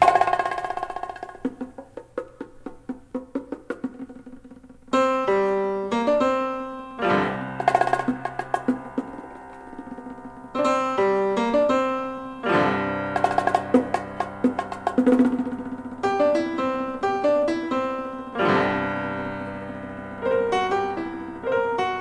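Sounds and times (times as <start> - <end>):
drums and percussion: 0.0 - 5.2, 7.2 - 11.8, 12.6 - 17.8
piano chords: 0.0 - 22.0.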